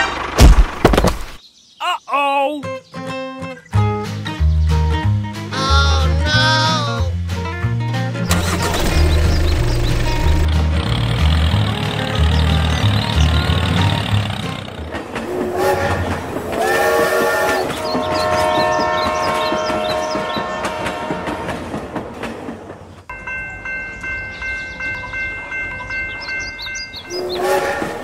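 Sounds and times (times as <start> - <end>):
train wheels clattering on rail joints: 10.1 - 23.1
train horn blasts: 15.2 - 21.9, 27.1 - 28.0.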